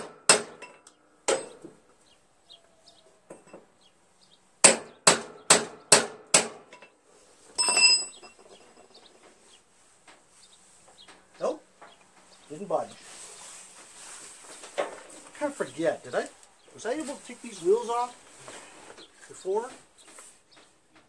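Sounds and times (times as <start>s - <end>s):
metallic clang ringing: 7.6s - 8.6s.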